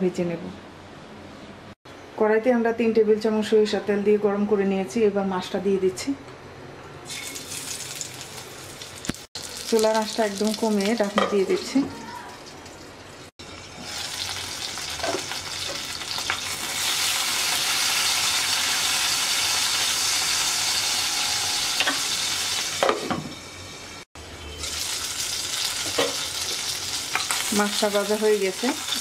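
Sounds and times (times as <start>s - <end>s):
fish sizzling in oil: 7.1s - 11.2s, 13.4s - 22.8s, 24.6s - 29.0s.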